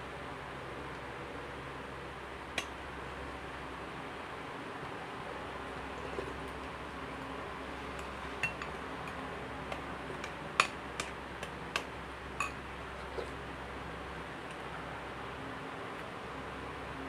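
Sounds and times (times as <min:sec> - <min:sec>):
metal spoon clinking ceramic bowl: 0:08.4 - 0:08.8, 0:12.4 - 0:12.6.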